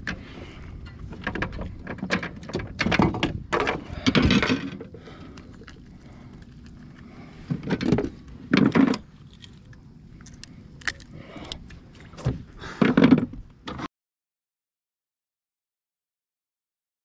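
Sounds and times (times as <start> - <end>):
handling noises rattling and knocking: 0.0 - 11.0.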